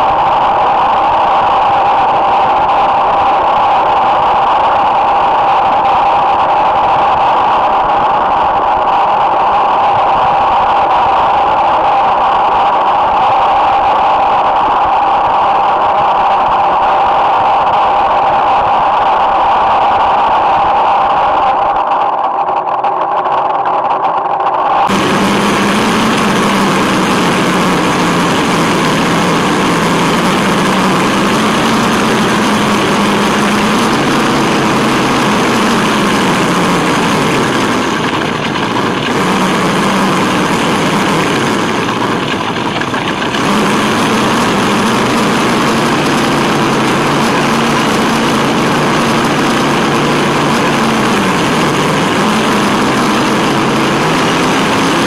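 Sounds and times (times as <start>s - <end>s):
motor and gear whine: 0.0s - 55.0s
tyres rushing on paving and gravel: 24.9s - 55.0s.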